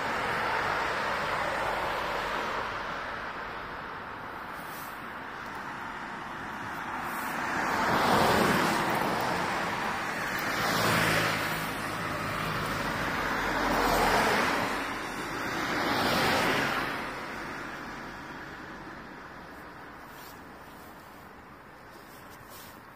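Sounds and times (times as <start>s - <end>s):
vehicles passing: 0.0s - 22.9s.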